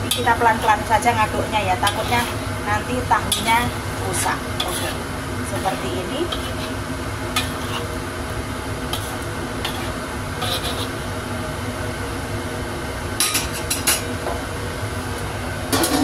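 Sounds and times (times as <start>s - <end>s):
metal spatula scraping wok: 0.0s - 8.0s, 8.9s - 11.2s
food sizzling: 0.0s - 16.0s.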